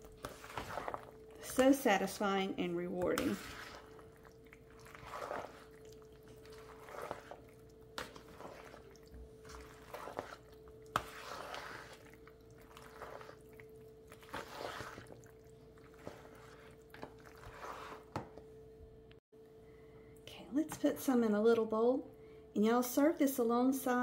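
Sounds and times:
wet squishing of stirred pasta: 0:00.0 - 0:18.6.

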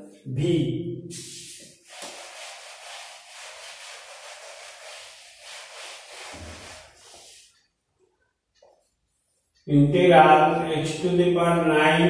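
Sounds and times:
duster rubbing on whiteboard: 0:01.1 - 0:07.6.

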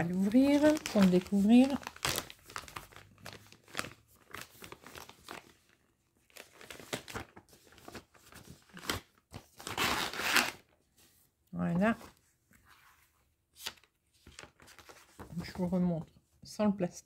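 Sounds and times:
plastic packaging crinkling: 0:00.0 - 0:10.6.

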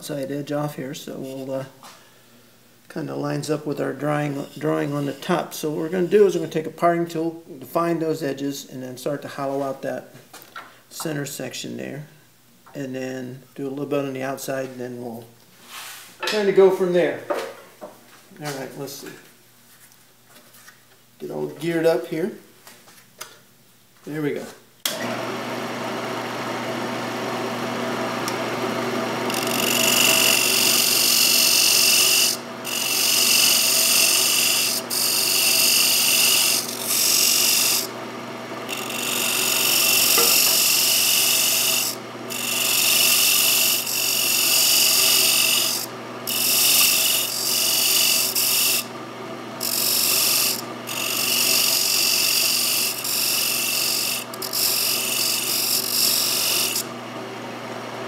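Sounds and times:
tool scraping spinning wood: 0:03.0 - 0:06.6, 0:26.8 - 0:57.0
wood lathe humming: 0:03.9 - 0:06.5, 0:24.9 - 0:58.0.

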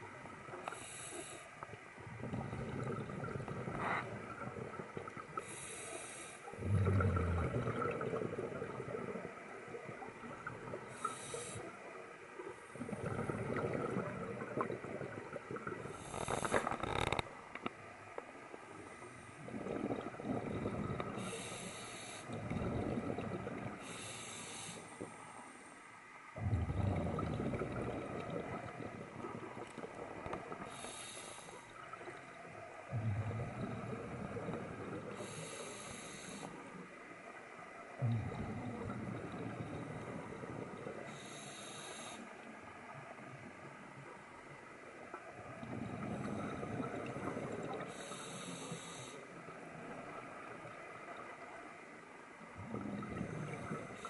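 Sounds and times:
regulator inhalation hiss: 0:00.7 - 0:01.5, 0:05.4 - 0:06.5, 0:11.0 - 0:11.7, 0:21.2 - 0:22.3, 0:23.8 - 0:25.0, 0:30.7 - 0:31.7, 0:35.1 - 0:36.6, 0:41.0 - 0:42.3, 0:47.9 - 0:49.3
exhaled bubbles rumbling: 0:01.6 - 0:05.6, 0:06.5 - 0:17.7, 0:18.4 - 0:21.6, 0:22.3 - 0:24.2, 0:26.3 - 0:35.6, 0:36.6 - 0:41.4, 0:42.4 - 0:48.3, 0:49.3 - 0:54.0.

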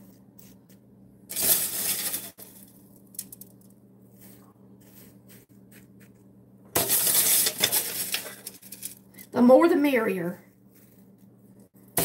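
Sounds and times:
flakes rustling and ticking: 0:01.3 - 0:05.5, 0:06.8 - 0:09.2
hand scooping dry flakes: 0:04.1 - 0:05.9.

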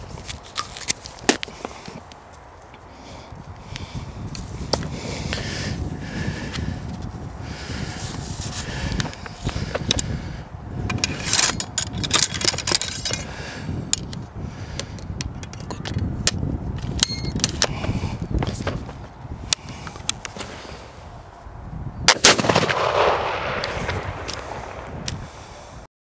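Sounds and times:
ramrod scraping in rifle barrel: 0:10.8 - 0:13.3.

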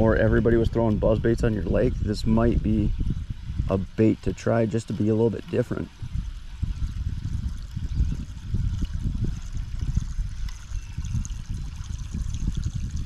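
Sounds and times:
dense uneven low rumble: 0:00.0 - 0:13.0.

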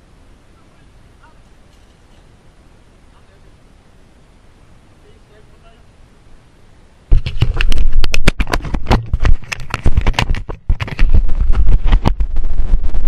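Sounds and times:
camera handling scraping and clicks: 0:07.2 - 0:11.2
heavy low rumble: 0:09.0 - 0:13.0.

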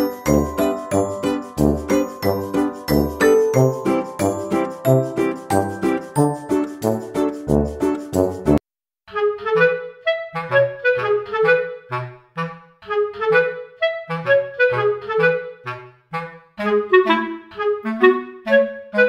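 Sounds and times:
bouncy music with bass line: 0:00.0 - 0:08.6.

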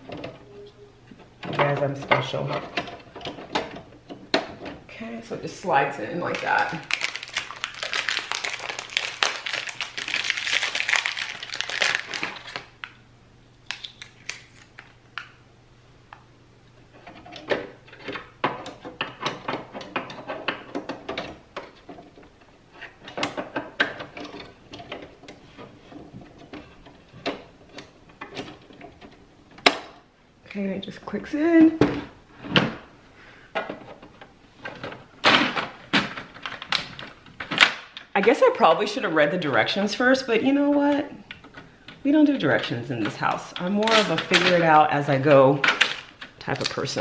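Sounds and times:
plastic wrapping crinkling: 0:06.2 - 0:13.0, 0:13.6 - 0:15.4.

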